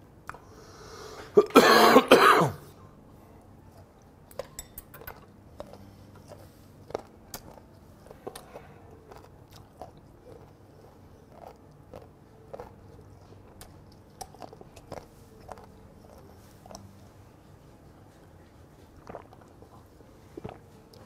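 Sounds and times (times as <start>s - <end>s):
man coughing: 1.4s - 2.6s
wet chewing clicks: 3.8s - 16.9s, 18.8s - 21.0s.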